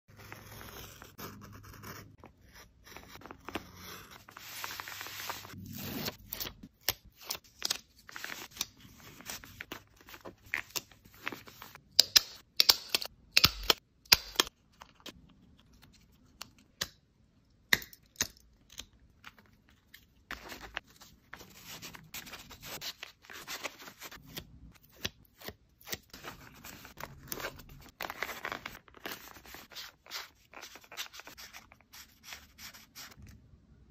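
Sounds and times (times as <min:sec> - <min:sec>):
paper being handled and torn: 0:00.1 - 0:11.8, 0:19.4 - 0:33.2.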